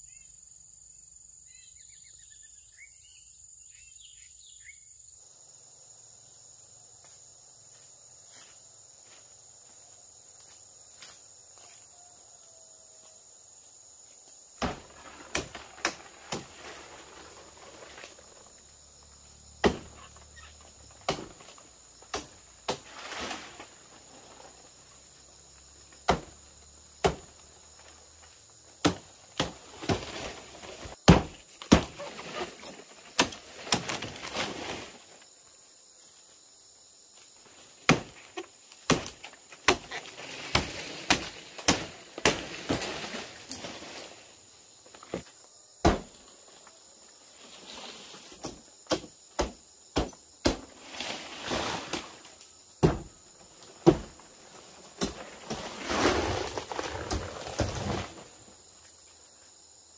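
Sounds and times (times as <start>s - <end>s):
palm fronds rustling: 13.6s - 49.0s, 49.9s - 59.9s
machete chopping palm stalks: 14.6s - 18.2s, 19.6s - 20.2s, 20.9s - 23.8s, 25.9s - 26.4s, 27.0s - 27.4s, 28.8s - 35.0s, 37.8s - 44.0s, 45.8s - 46.2s, 48.3s - 54.2s, 54.9s - 58.2s.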